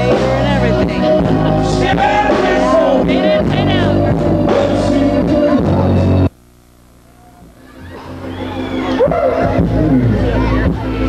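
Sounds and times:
blues-rock band playing: 0.0 - 6.3, 7.7 - 11.0
person singing: 0.0 - 6.3.

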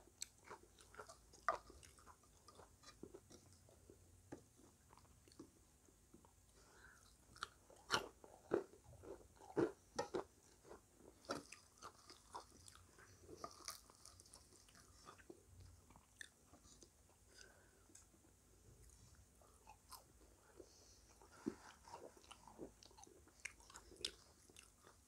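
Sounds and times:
chewing crispy snacks: 0.1 - 3.6, 7.0 - 18.2, 21.4 - 25.0.

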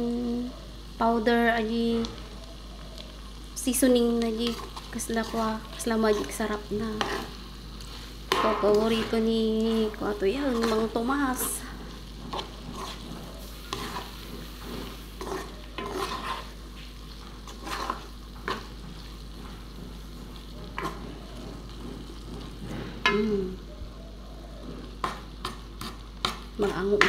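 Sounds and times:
food sizzling in frying pan: 0.0 - 27.0
wooden spatula scraping pan: 4.1 - 23.3, 24.6 - 27.0.

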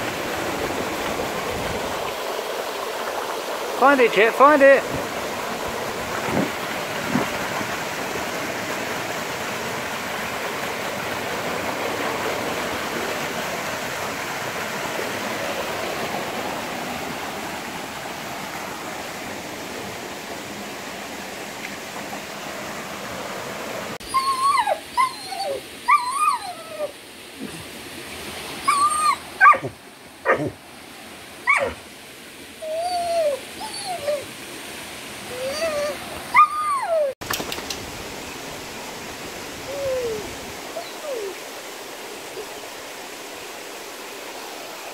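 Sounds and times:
small waterfall rushing: 0.0 - 44.9
dog whining and yipping: 24.0 - 27.0, 28.6 - 29.7, 31.5 - 31.8, 32.6 - 34.3, 35.3 - 37.2, 39.6 - 40.2, 40.8 - 41.4.

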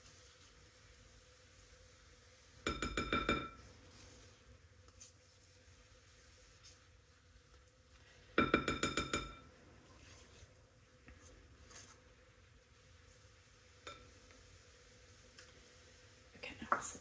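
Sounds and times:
utensils tapping glass bowl: 2.7 - 3.6, 8.4 - 9.4.

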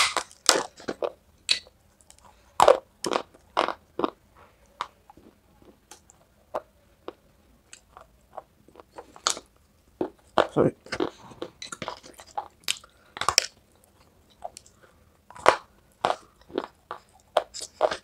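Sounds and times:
chalk crunching and chewing: 10.1 - 18.0.

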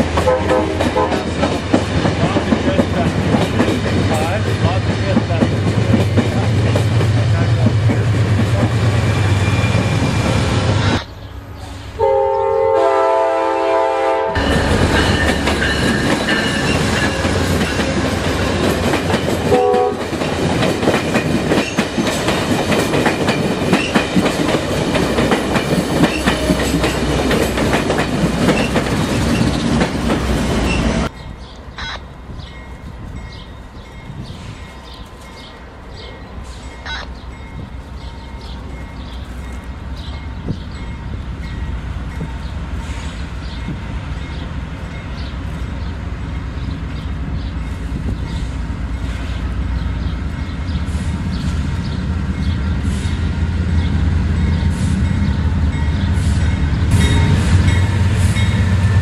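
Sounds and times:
train wheels clattering over rail joints: 0.0 - 8.8, 14.4 - 31.1
train rumbling past: 0.0 - 59.0
locomotive air horn: 0.2 - 1.3, 11.9 - 14.9, 19.5 - 20.1.

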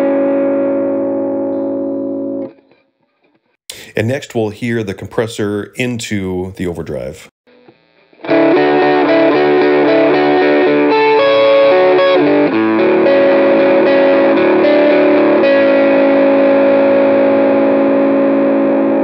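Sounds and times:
overdriven electric guitar: 0.0 - 3.5, 7.5 - 19.0.

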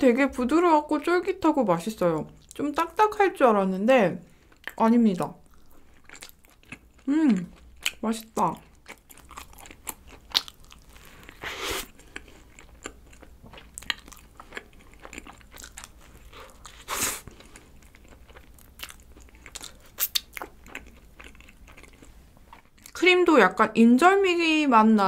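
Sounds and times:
wet chewing mouth sounds: 5.4 - 23.0.

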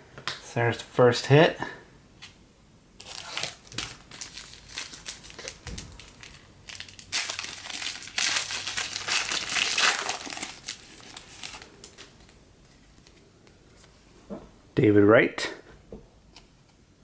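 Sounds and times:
foil wrapper crinkling: 3.0 - 12.4.

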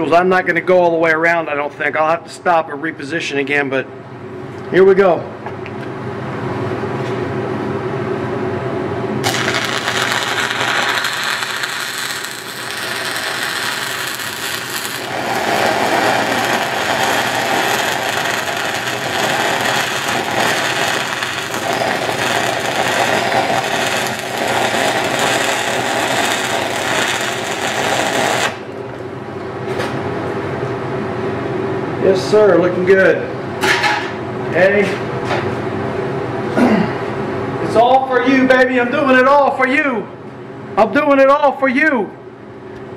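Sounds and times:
steady low hum: 0.0 - 42.9
welding arc crackling: 9.2 - 28.9.

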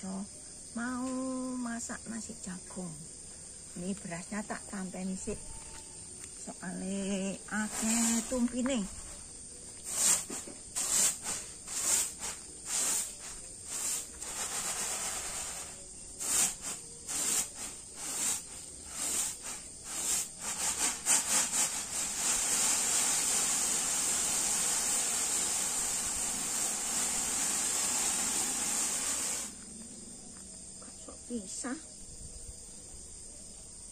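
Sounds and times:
grits sliding hiss: 7.0 - 29.7
grits rattling in tray: 9.8 - 29.6.

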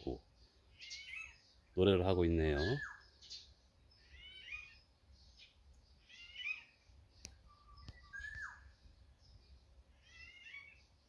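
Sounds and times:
sparrows chirping: 0.0 - 11.0
faint sharp clicks: 7.2 - 8.0
falling whistled bird call: 7.6 - 8.6.

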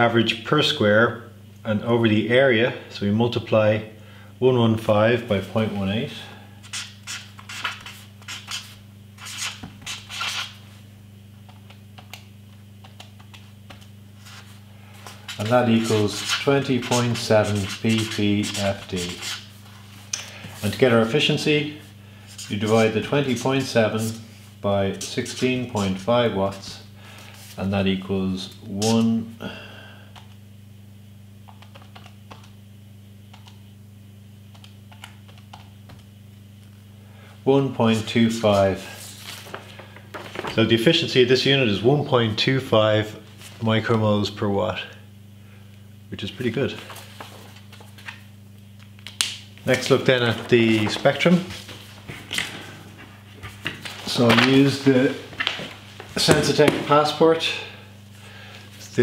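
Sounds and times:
low electrical hum: 0.0 - 59.0
pen scratching on paper: 15.4 - 19.4.

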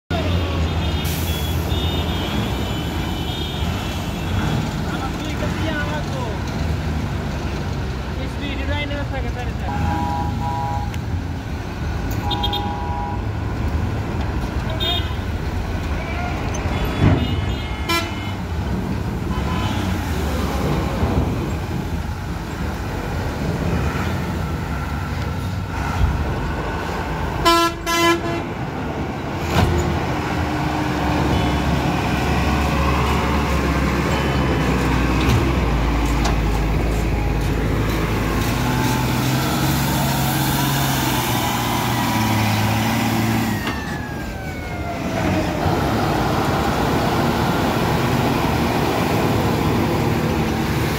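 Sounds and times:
truck diesel engines running: 0.1 - 50.9
vehicle horns honking: 0.7 - 4.6, 9.7 - 11.0, 12.2 - 13.3, 14.7 - 15.2, 16.7 - 18.4, 27.4 - 28.5.

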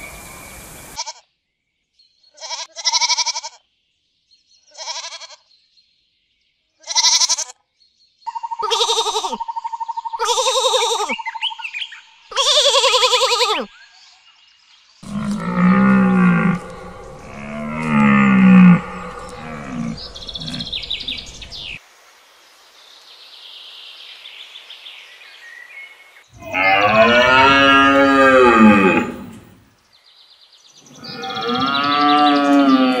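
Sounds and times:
sheep bleating: 2.4 - 3.6, 4.7 - 5.4, 6.9 - 7.5, 8.6 - 9.4, 15.0 - 21.2, 26.4 - 29.4
deer stags roaring: 15.0 - 21.8, 26.4 - 29.6, 31.0 - 33.0.

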